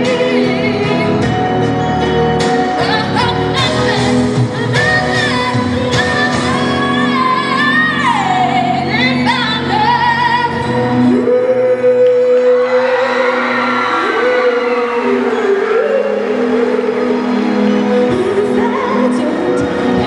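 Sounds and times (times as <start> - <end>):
backing music: 0.0 - 20.0
girl singing into microphone: 2.8 - 10.7, 18.1 - 20.0.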